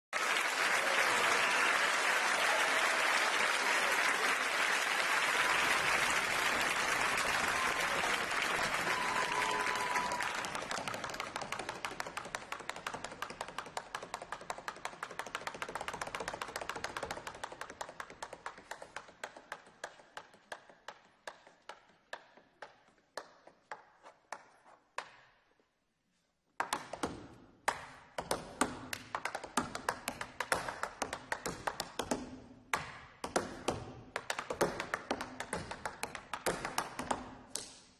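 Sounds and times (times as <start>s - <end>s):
audience applause: 0.1s - 19.5s.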